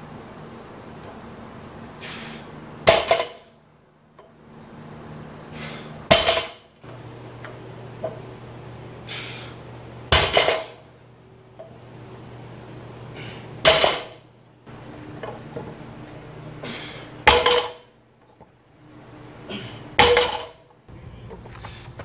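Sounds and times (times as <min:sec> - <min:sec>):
barbell plates clanking: 0:10.1 - 0:10.8, 0:13.6 - 0:14.2, 0:17.2 - 0:17.9, 0:20.0 - 0:20.6
plates rattling: 0:10.2 - 0:10.8.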